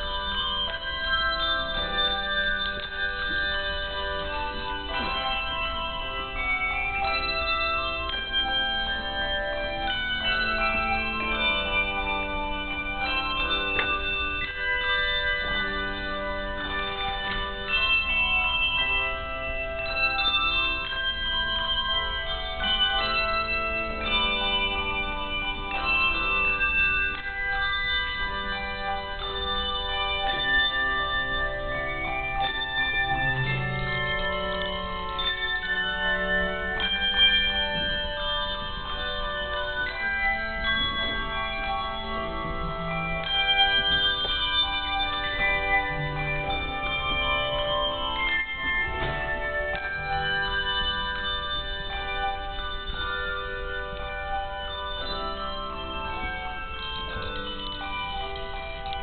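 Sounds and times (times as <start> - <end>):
handbells ringing: 0.0 - 59.0.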